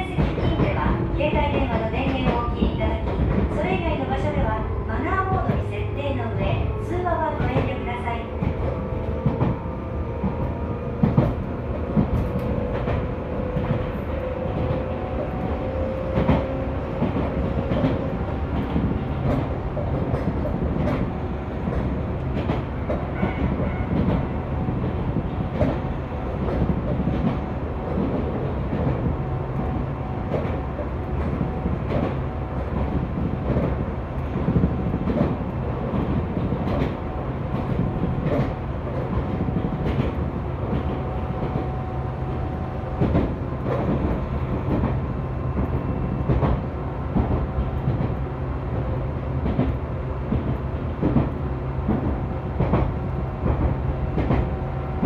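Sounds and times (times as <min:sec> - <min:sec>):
rail-joint clicks: 0:00.0 - 0:09.6, 0:10.2 - 0:41.8, 0:42.9 - 0:48.3, 0:49.4 - 0:55.0
train rumbling: 0:00.0 - 0:55.0.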